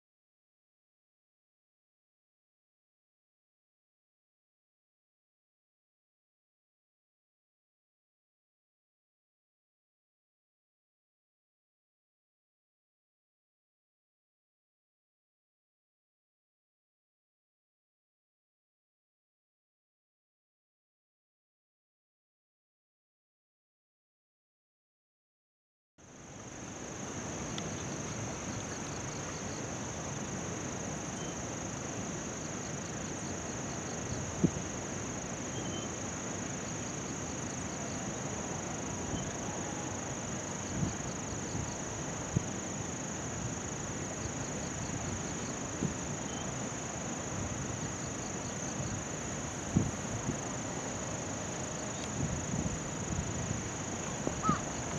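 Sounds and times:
insects chirring: 0:26.1 - 0:54.9.

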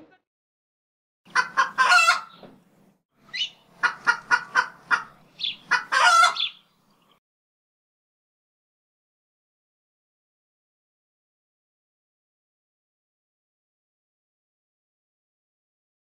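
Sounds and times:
bird calling: 0:03.2 - 0:07.2.

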